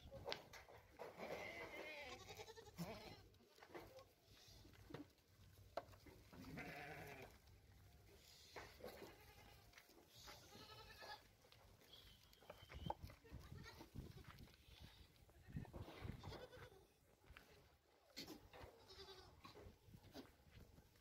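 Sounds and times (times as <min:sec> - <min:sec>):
goats bleating: 0:01.2 - 0:03.4, 0:06.3 - 0:07.4, 0:08.8 - 0:11.4, 0:13.2 - 0:16.9, 0:18.3 - 0:19.5.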